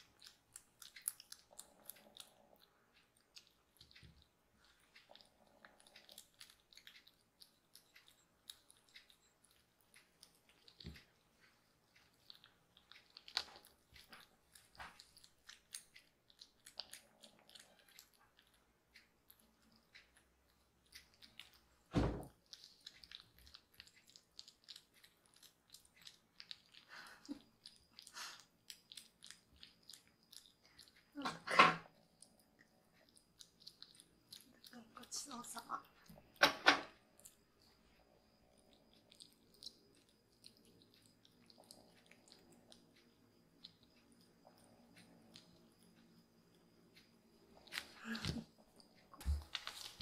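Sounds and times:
teeth clicking against bowls: 0.0 - 48.5
kittens chewing and lapping: 0.0 - 50.0
dull thump: 21.9 - 22.3.

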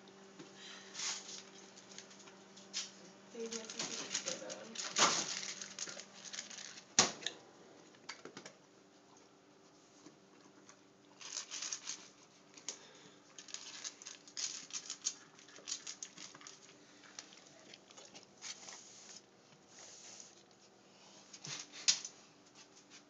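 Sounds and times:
dog crunching kibble: 3.4 - 7.0, 10.7 - 12.3, 13.4 - 18.8.

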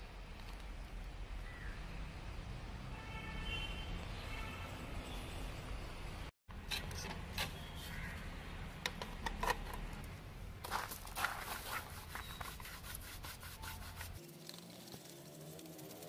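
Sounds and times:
brush scrubbing plastic panel: 11.2 - 14.2.

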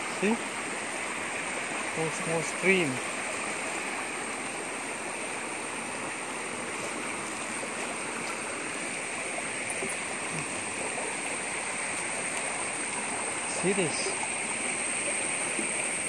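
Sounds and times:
stream rushing over stones: 0.0 - 16.0.

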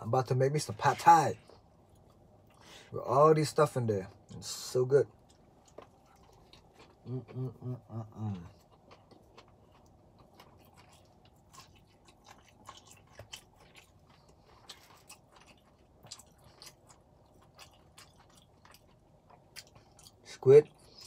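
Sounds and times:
chewing noodles: 5.1 - 21.0.

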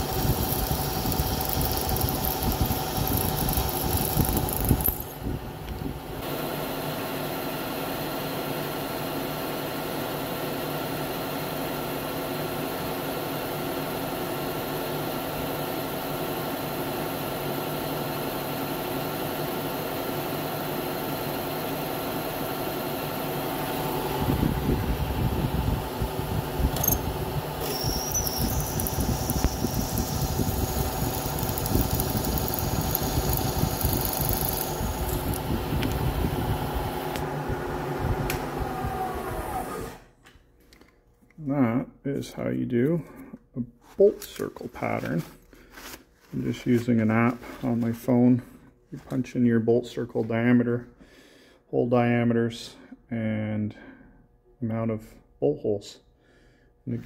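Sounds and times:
drill bit cutting metal: 0.0 - 5.1, 27.6 - 35.4
milling machine motor hum: 0.0 - 5.2, 26.5 - 40.0.

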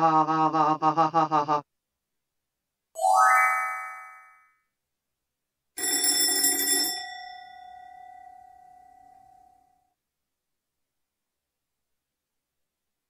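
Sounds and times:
cartoon bell ringing: 3.0 - 4.6.

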